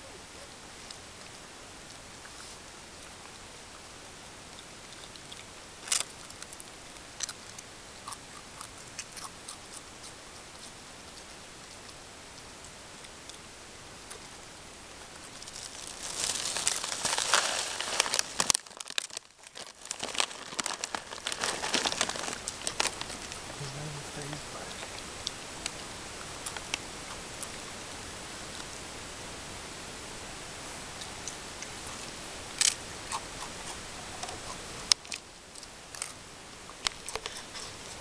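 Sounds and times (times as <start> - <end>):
steady hiss: 0.0 - 38.0
animal crunching potato chips: 4.5 - 13.4, 14.1 - 27.6, 31.0 - 38.0.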